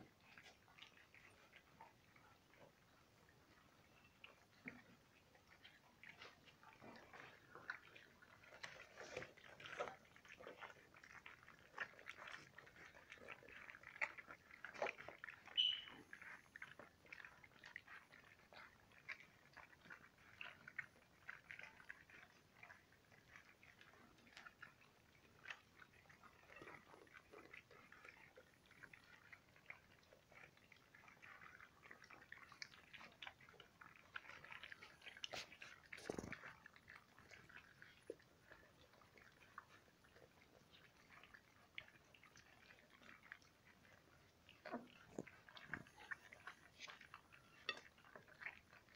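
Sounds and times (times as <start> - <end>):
puppies lapping and slurping: 0.0 - 48.9
high squeak: 15.6 - 15.9.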